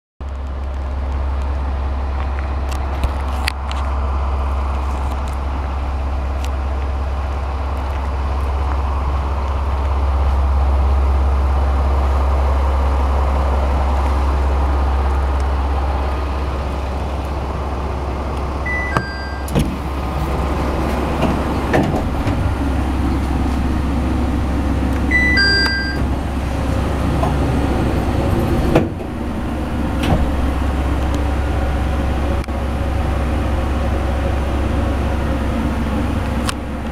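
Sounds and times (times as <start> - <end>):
diesel railcar idling: 0.2 - 36.9
two-note falling door chime: 18.7 - 19.5, 25.1 - 26.1.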